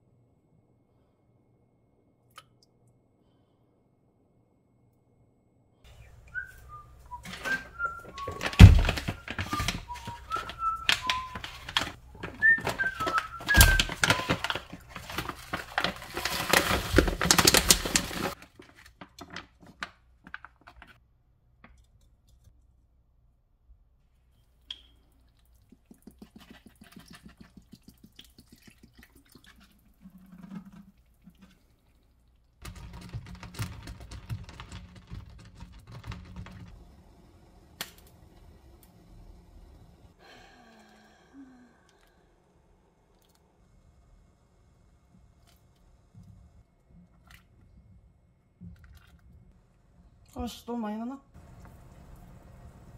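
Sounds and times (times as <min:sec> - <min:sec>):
kitchen knocks and clatter: 0:07.1 - 0:21.0, 0:32.6 - 0:36.8.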